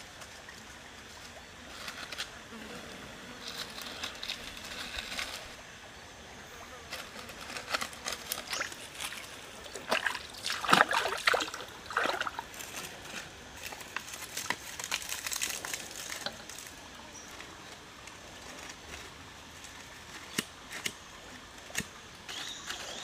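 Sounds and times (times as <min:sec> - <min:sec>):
water splashing and trickling: 0:00.0 - 0:02.5, 0:06.9 - 0:23.0.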